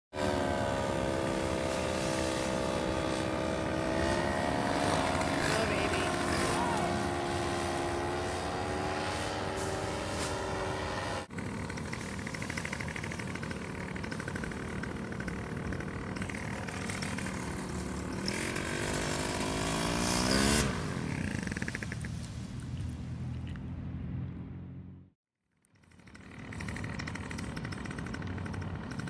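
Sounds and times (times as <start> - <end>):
paramotor engine revving: 0.1 - 22.1.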